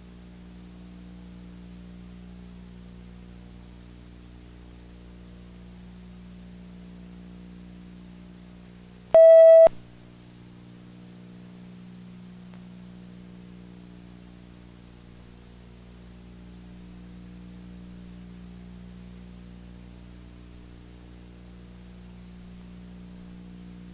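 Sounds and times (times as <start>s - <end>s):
faint electrical hum: 0.0s - 23.9s
loud electronic beep: 9.2s - 9.7s.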